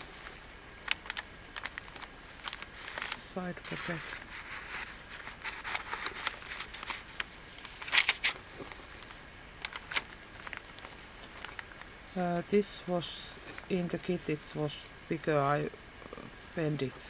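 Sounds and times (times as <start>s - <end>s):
paper pages rustling and crackling: 0.0s - 12.0s.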